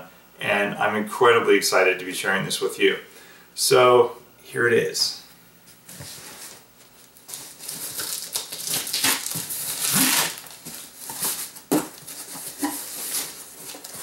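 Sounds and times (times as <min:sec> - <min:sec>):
cardboard rustling and scraping: 0:05.7 - 0:14.0
packing tape ripping: 0:07.2 - 0:14.0.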